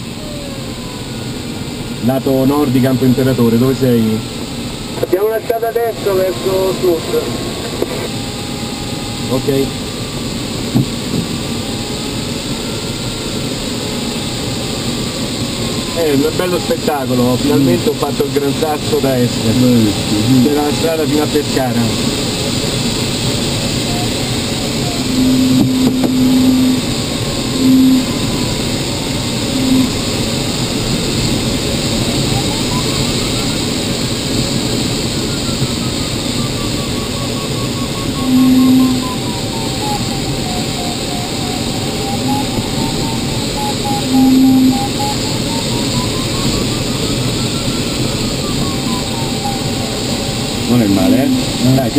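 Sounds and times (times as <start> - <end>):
low steady tone: 2.6 - 51.9
variometer beeping: 13.9 - 51.9
airflow rushing over canopy: 21.9 - 51.6.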